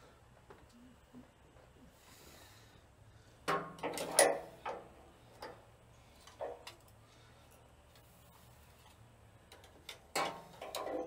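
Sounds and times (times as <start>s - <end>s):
metal tools clanking on engine: 3.5s - 5.6s, 10.1s - 11.0s.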